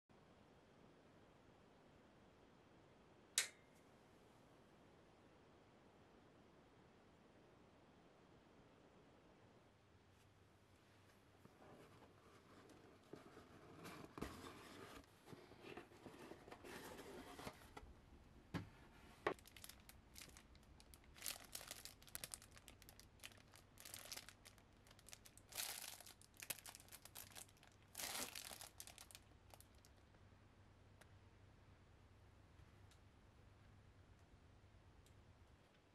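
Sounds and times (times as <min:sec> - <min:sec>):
plastic bags crinkling: 0:19.3 - 0:30.0.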